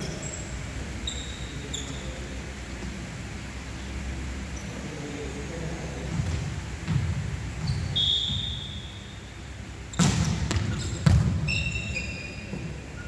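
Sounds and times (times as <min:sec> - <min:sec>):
sneakers squeaking on wooden court: 0:00.0 - 0:02.2, 0:06.2 - 0:13.0.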